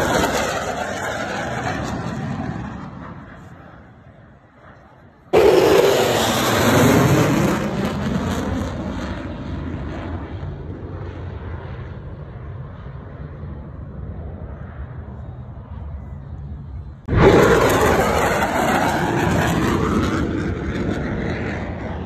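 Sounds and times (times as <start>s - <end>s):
jet flying past: 0.0s - 22.0s.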